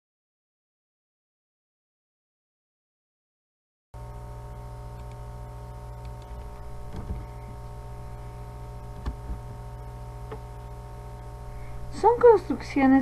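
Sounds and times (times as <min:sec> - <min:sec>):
electrical hum: 0:04.0 - 0:13.0.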